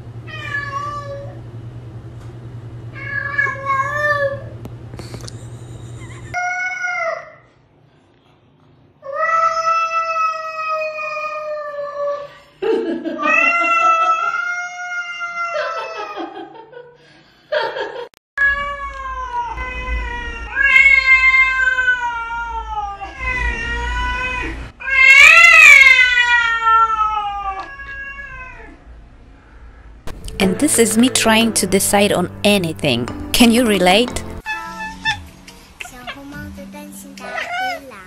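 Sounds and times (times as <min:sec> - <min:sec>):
cats yowling: 0:00.3 - 0:01.4, 0:03.0 - 0:04.5, 0:06.3 - 0:07.4, 0:09.0 - 0:12.3, 0:13.2 - 0:16.4, 0:18.4 - 0:28.9, 0:34.4 - 0:35.3, 0:37.2 - 0:37.9.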